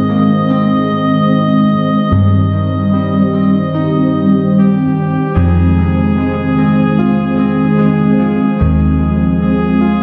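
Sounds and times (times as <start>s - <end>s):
organ-like keyboard chords: 0.0s - 10.0s
held bass note: 2.1s - 10.0s.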